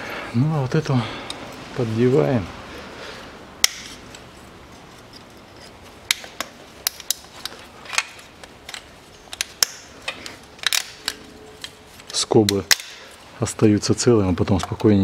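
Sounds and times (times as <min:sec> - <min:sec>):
plastic clips clicking and snapping: 0:06.0 - 0:13.1.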